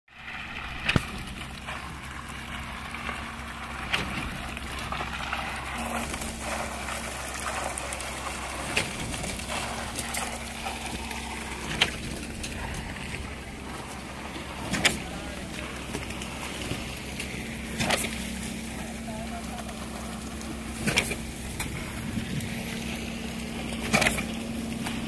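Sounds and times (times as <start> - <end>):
concrete pump running: 0.1 - 25.0.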